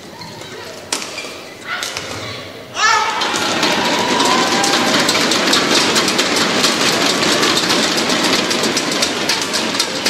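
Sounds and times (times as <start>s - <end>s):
crowd cheering: 2.8s - 6.8s
crowd clapping and clacking: 3.2s - 10.0s.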